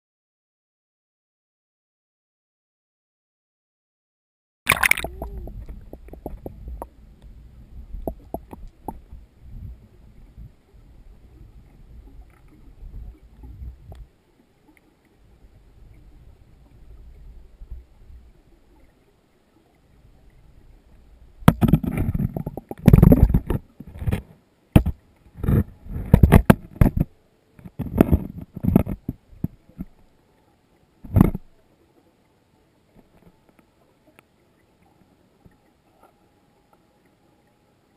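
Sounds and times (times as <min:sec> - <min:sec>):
faint low underwater rumble: 0:04.7 - 0:37.9
water rushing: 0:04.7 - 0:37.9
muffled thumps: 0:21.4 - 0:30.0, 0:31.0 - 0:31.5.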